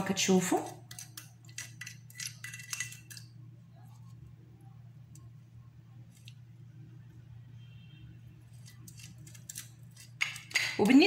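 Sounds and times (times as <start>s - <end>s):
low steady hum: 0.0s - 11.0s
metal spoon scraping ceramic dish: 0.4s - 3.3s, 8.5s - 11.0s.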